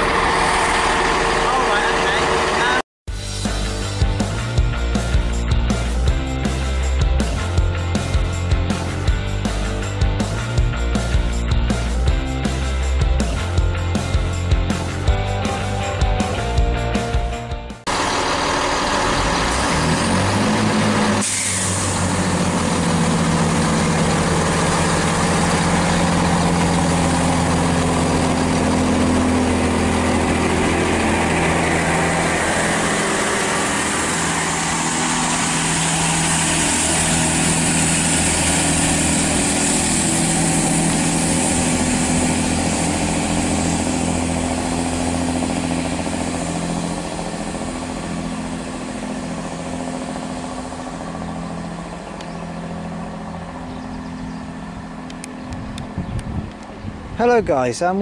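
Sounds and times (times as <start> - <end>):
diesel train engine drone: 0.0 - 58.0
wheel and rail noise: 17.9 - 58.0.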